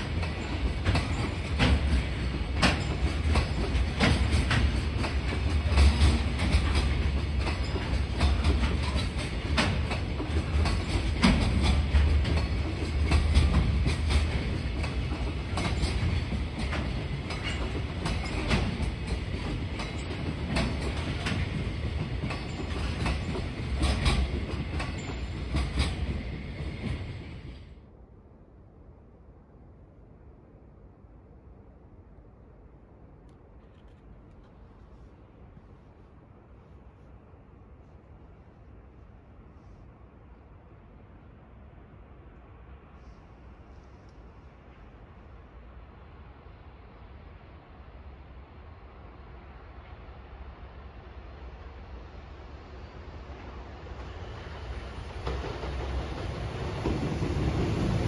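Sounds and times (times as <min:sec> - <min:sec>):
wheel clacks over rail joints: 0:00.0 - 0:27.0
freight train rumbling past: 0:00.0 - 0:58.0.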